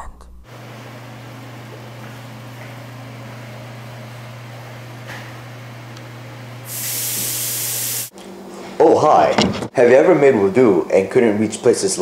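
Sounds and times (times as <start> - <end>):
even hiss: 6.7 - 8.1.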